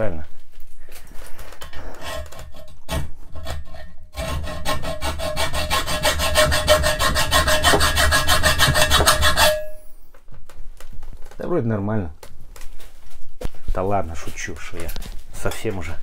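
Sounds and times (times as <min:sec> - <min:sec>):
hacksaw cutting steel: 0:02.0 - 0:09.8
ringing steel note: 0:09.3 - 0:10.0.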